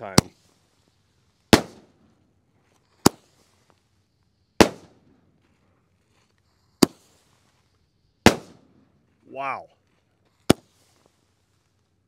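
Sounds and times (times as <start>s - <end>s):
firework bangs: 1.4s - 2.2s, 2.9s - 3.6s, 4.5s - 5.3s, 6.8s - 7.3s, 8.2s - 8.9s, 10.4s - 11.0s.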